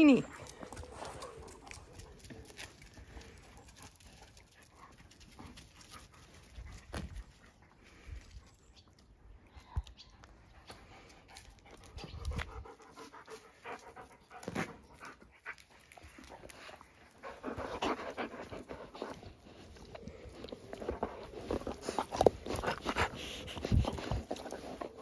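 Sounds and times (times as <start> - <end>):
dog panting: 10.4 - 25.0.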